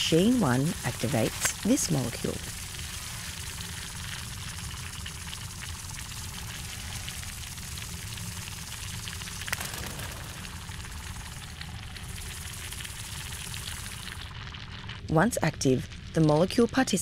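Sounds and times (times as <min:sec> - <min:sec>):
low rumble: 0:05.8 - 0:14.4.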